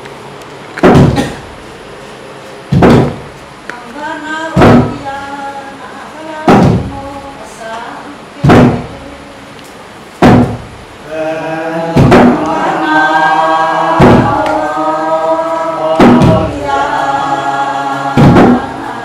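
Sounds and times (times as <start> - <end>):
barrel drum heavy beats: 0.8 - 1.4, 2.7 - 3.3, 4.6 - 5.0, 6.5 - 7.0, 8.4 - 8.9, 10.2 - 10.9, 11.9 - 12.9, 13.8 - 14.7, 15.9 - 17.0, 18.1 - 18.9
group of people chanting: 11.0 - 19.0.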